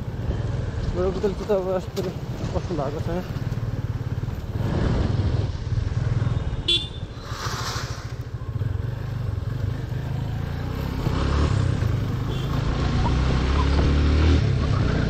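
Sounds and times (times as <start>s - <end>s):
motorcycle engine running: 0.4s - 7.0s.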